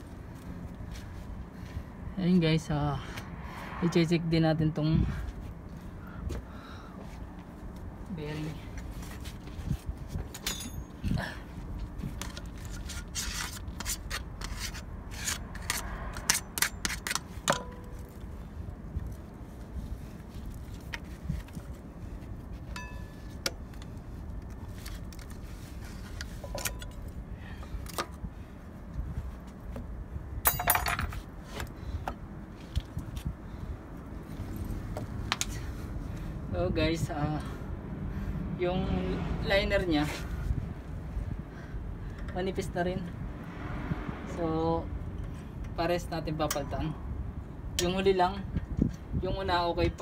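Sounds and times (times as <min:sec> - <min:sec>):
metal tools clinking: 0:10.3 - 0:11.0, 0:30.4 - 0:31.2.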